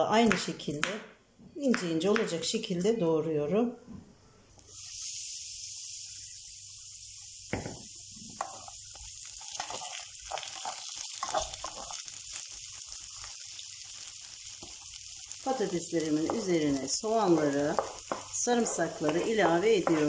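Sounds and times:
potatoes sizzling in oil: 4.6 - 20.0
wooden spoon scraping a pan: 8.4 - 8.7, 16.2 - 20.0.

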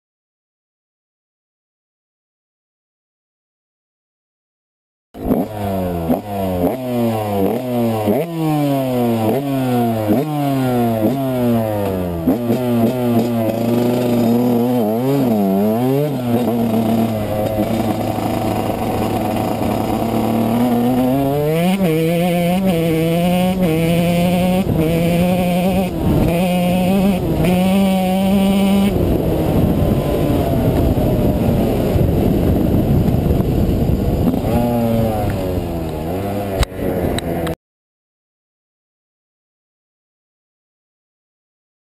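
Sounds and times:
dirt bike engine revving: 5.2 - 37.6.

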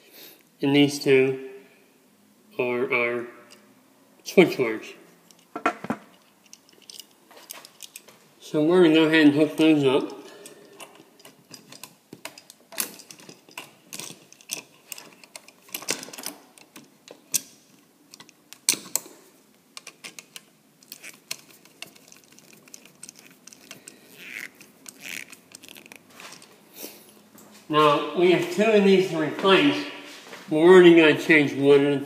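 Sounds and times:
screwdriver and wires clicking on metal: 10.0 - 19.1, 19.8 - 26.6.

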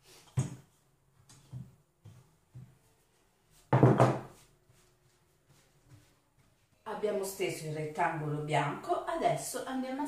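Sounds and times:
rolling pin knocking on board: 3.7 - 4.3.

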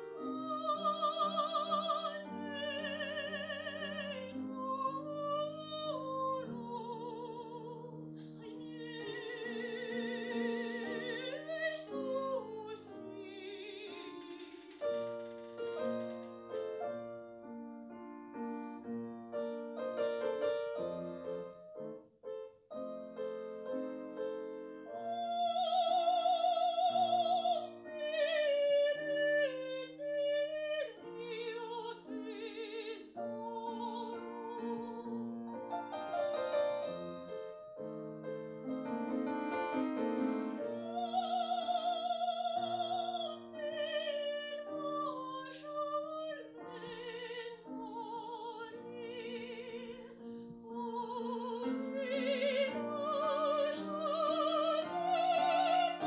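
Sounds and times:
soprano singing with vibrato: 0.0 - 16.2, 24.8 - 37.3, 38.9 - 56.0
piano chords: 0.0 - 56.0.

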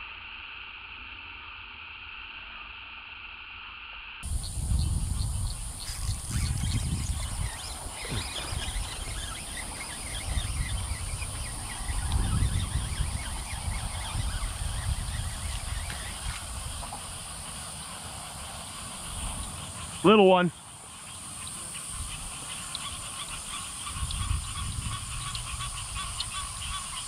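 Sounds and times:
high insect drone: 0.0 - 27.0
low rumble on microphone: 4.2 - 17.5, 23.0 - 27.0
short chirping calls: 4.3 - 27.0.

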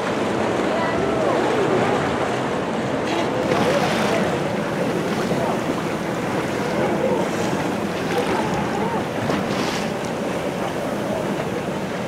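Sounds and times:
choppy sea water: 0.0 - 12.0.

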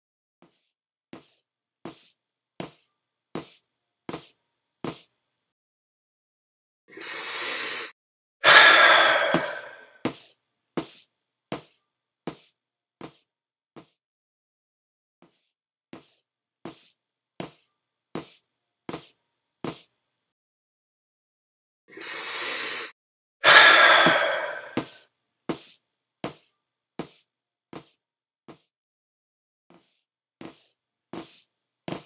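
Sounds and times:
breath in: 6.9 - 9.9, 21.9 - 25.0
long loud sigh: 7.0 - 9.9, 22.0 - 25.0
footsteps walking: 24.0 - 25.7.

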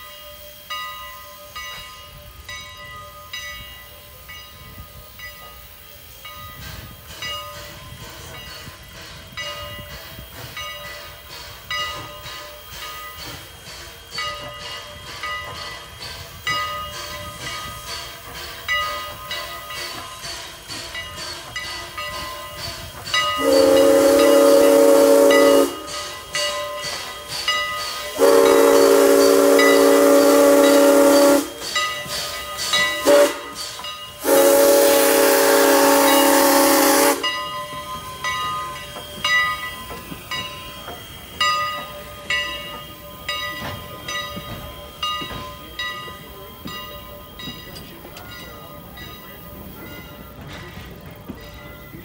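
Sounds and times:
train wheels clicking on rail joints: 0.0 - 52.0
steam locomotive whistle: 4.0 - 47.4.

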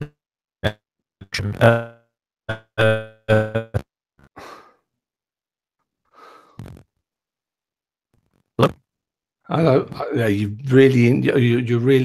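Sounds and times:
garbled speech on video call: 1.2 - 1.9, 8.6 - 8.9, 9.5 - 12.0.

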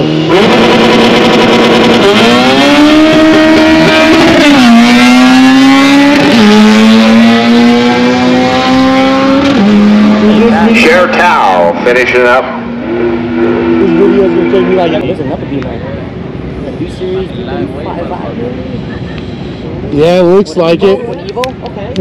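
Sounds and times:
race car engine accelerating: 0.0 - 16.4.

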